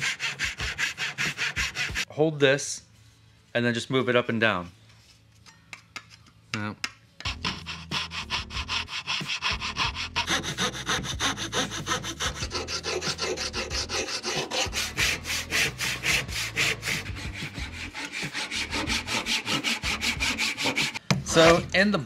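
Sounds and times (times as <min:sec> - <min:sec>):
hand tool filing wood: 0:00.0 - 0:02.1, 0:07.3 - 0:21.6.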